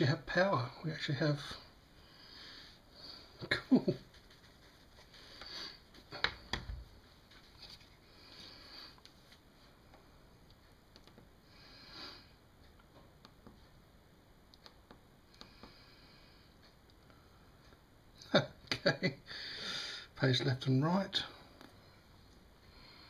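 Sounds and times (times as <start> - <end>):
faint small clicks: 10.5 - 11.3, 14.5 - 15.7.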